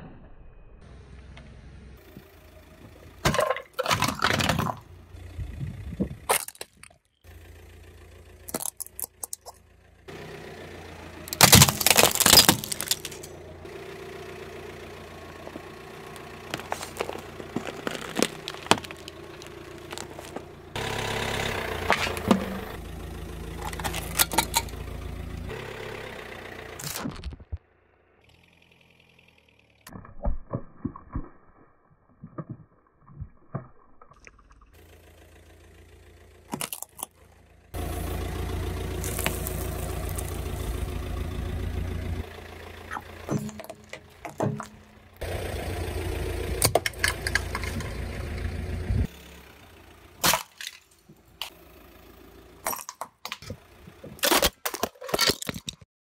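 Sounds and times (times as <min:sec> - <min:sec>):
car engine idling: 0:00.9 - 0:06.4, 0:07.1 - 0:26.9, 0:27.8 - 0:29.9, 0:34.6 - 0:54.4
car tyre crushing objects: 0:02.0 - 0:25.6, 0:29.6 - 0:55.9
hard plastic cracking and splintering: 0:06.3 - 0:07.1, 0:08.5 - 0:09.6, 0:11.3 - 0:13.3, 0:16.1 - 0:20.5, 0:23.6 - 0:24.7, 0:36.5 - 0:37.2, 0:39.0 - 0:40.5, 0:42.9 - 0:44.8, 0:50.2 - 0:51.6, 0:52.6 - 0:55.9
plastic glasses crunching: 0:06.3 - 0:07.1, 0:08.5 - 0:09.6, 0:11.3 - 0:13.3, 0:16.1 - 0:20.5, 0:21.8 - 0:22.8, 0:23.6 - 0:24.8, 0:36.5 - 0:37.2, 0:39.0 - 0:40.7, 0:42.9 - 0:44.8, 0:50.2 - 0:51.6, 0:52.6 - 0:55.9.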